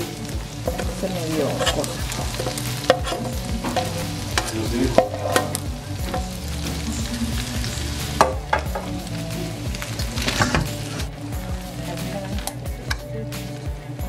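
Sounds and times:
meat and vegetables sizzling: 0.0 - 14.0
cookware clinking and knocking: 0.6 - 6.3, 8.2 - 9.0.

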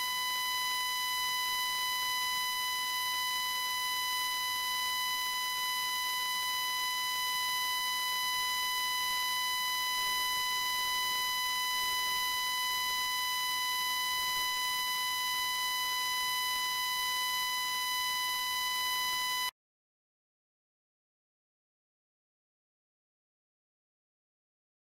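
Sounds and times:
microphone feedback tone: 0.0 - 19.5.

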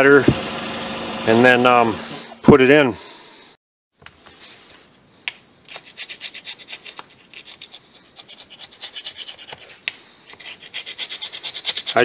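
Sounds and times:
metal scraper scraping rust: 5.7 - 12.0.

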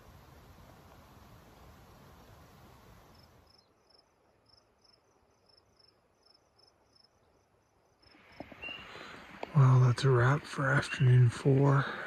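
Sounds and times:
faint steady hiss: 0.0 - 12.0
cricket chirps: 1.4 - 9.8.

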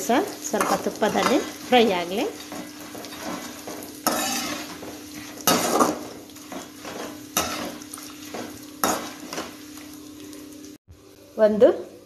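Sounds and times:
nuts frying in fat: 0.0 - 12.0
skimmer scraping a metal pan: 0.5 - 9.6.

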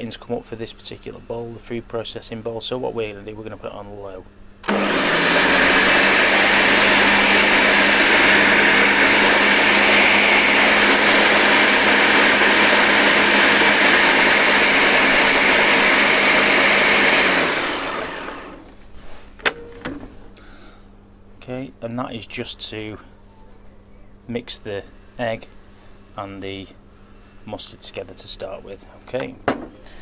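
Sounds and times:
blender motor whirring: 4.6 - 18.8.

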